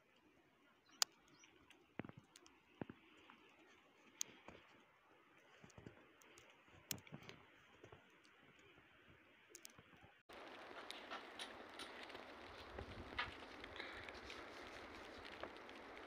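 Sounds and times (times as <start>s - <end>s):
sharp clicks and ticks: 5.6s - 8.7s, 9.5s - 16.0s
steady hiss: 10.3s - 16.0s.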